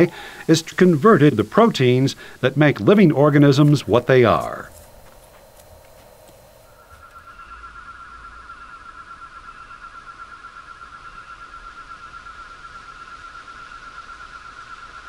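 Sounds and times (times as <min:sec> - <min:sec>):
pulsing high electronic tone: 0:01.0 - 0:12.4.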